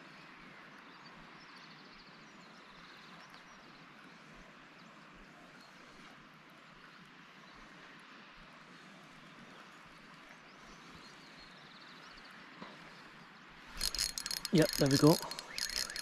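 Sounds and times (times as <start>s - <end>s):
faint outdoor hiss: 9.2s - 16.0s.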